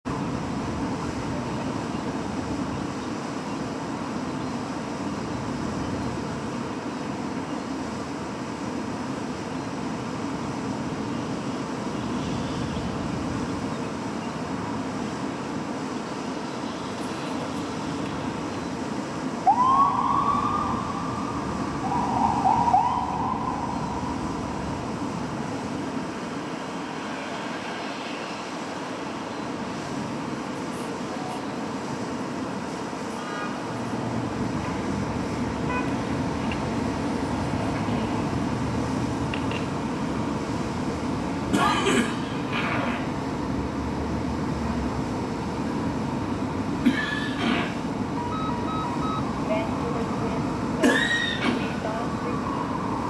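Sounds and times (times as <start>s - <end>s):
diesel engine rumbling: 19.7s - 27.0s.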